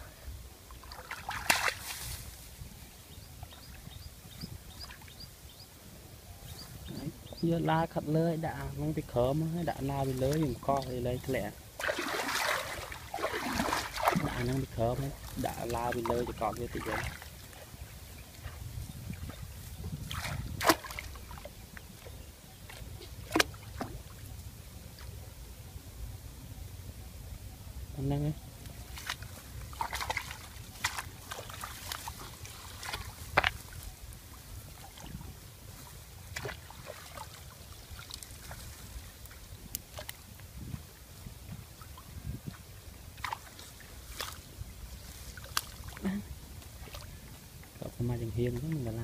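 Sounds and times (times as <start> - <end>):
faint outdoor background noise: 0.0 - 49.0
water splashing: 0.7 - 2.6, 8.4 - 24.3, 28.8 - 49.0.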